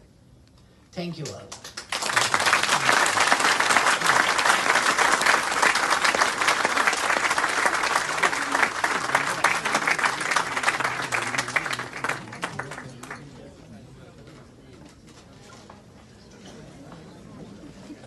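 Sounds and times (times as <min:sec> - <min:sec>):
audience applauding: 0:01.5 - 0:13.4.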